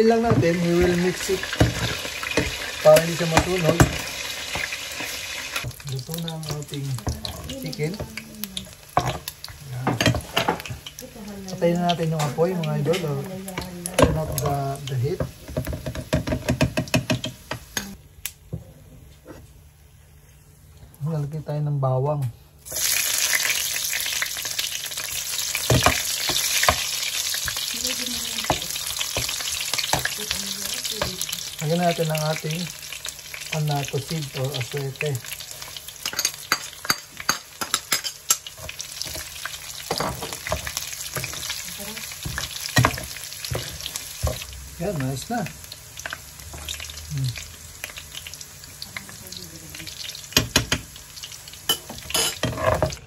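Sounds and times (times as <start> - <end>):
garlic sizzling in oil: 0.0 - 18.0, 22.6 - 53.0
metal spoon knocking pan: 15.6 - 17.4, 36.0 - 39.2, 50.4 - 50.9
metal utensils clinking on pan: 36.0 - 39.3, 51.7 - 53.0
metal spoon stirring: 51.7 - 53.0.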